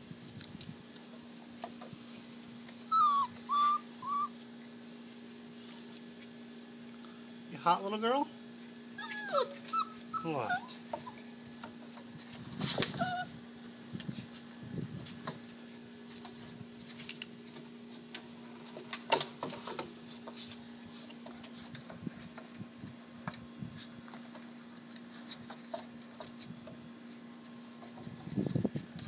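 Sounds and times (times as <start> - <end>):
scuffle close to microphone: 12.1 - 13.1.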